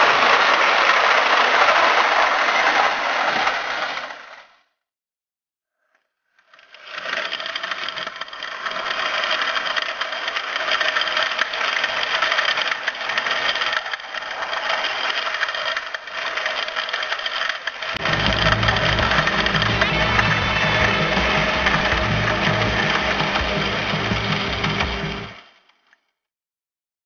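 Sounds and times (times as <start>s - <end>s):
model train wheels rattling: 0.0s - 3.5s, 6.4s - 26.0s.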